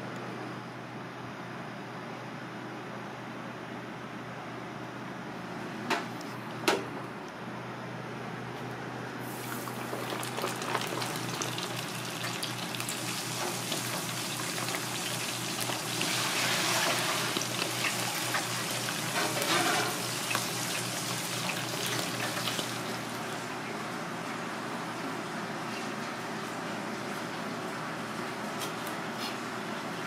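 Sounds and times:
fish sizzling in hot oil: 0:09.3 - 0:23.0.

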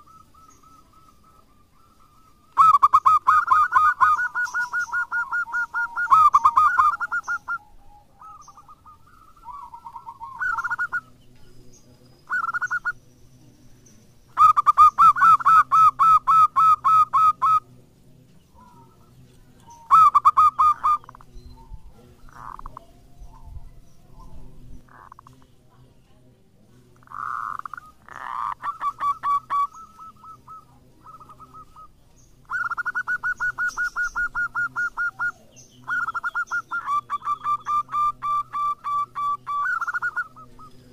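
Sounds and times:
dove cooing: 0:00.0 - 0:13.1, 0:14.3 - 0:26.2, 0:27.0 - 0:40.9.

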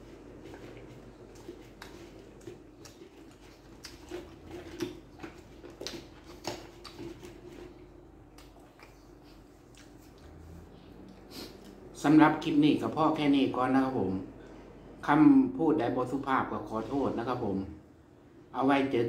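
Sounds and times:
man chewing food: 0:00.0 - 0:12.0
wet mouth clicks: 0:08.3 - 0:10.3.

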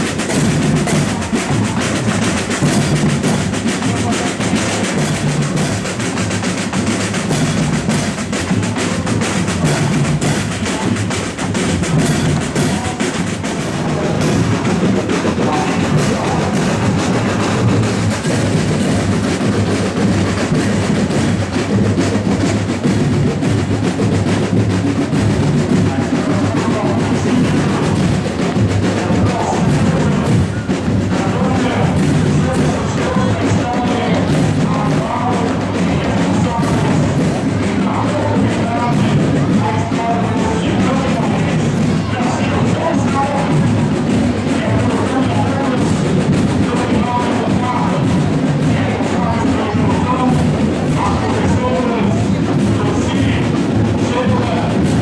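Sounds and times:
cymbals clashing: 0:00.0 - 0:21.4
bass drums: 0:00.0 - 0:55.0
snare drums: 0:00.0 - 0:55.0.

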